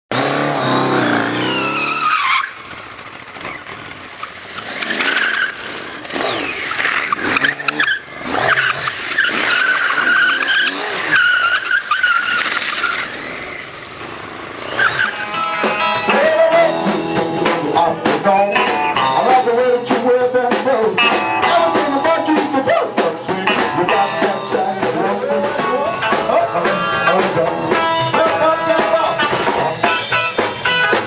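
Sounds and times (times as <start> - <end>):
motorcycle engine revving: 0.1 - 31.0
tyres squealing: 0.2 - 3.6, 4.2 - 13.2, 14.6 - 16.5.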